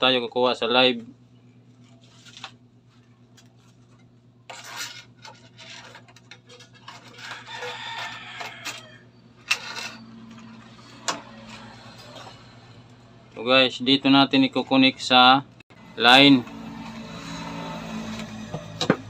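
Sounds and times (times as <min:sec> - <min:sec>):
wire scraping through plastic conduit: 0:03.9 - 0:12.7.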